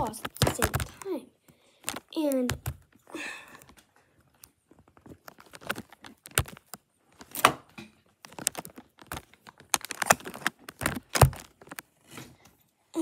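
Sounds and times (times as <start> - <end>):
plastic bricks clicking: 5.2 - 7.4, 8.2 - 11.8.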